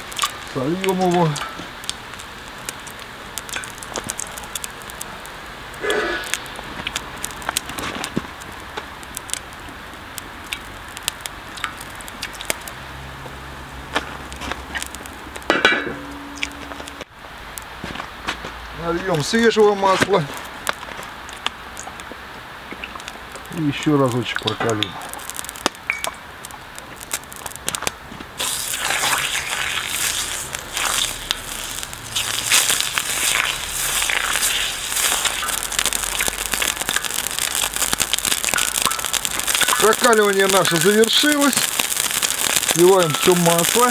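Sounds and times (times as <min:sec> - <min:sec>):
flame rushing: 0:00.0 - 0:18.4, 0:19.1 - 0:43.9
oil sizzling in hot pan: 0:00.0 - 0:43.9
wood fire crackling and popping: 0:00.0 - 0:43.9
low hum: 0:15.3 - 0:17.1.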